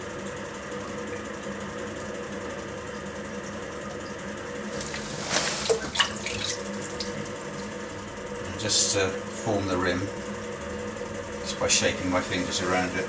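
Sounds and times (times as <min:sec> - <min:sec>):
potter's wheel humming: 0:00.0 - 0:13.0
wet splashes of water and slurry: 0:04.7 - 0:07.7.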